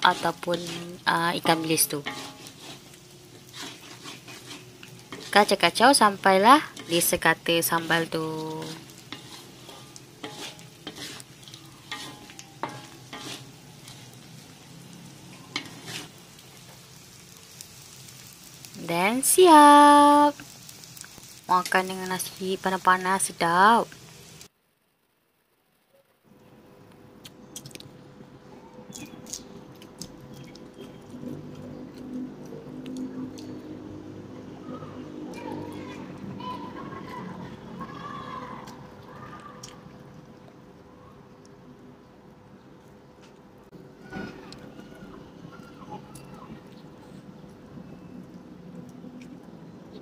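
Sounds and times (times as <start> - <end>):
spatula scraping a wok: 0.0 - 18.3
low sizzle: 0.0 - 50.0
sharp clicks and crackles: 26.4 - 27.9, 28.9 - 33.9.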